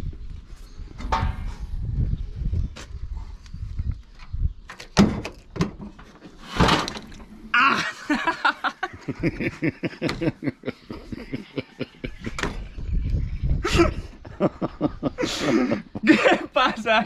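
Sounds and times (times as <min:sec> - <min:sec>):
man groaning and laughing: 0:07.5 - 0:12.4, 0:13.6 - 0:16.6.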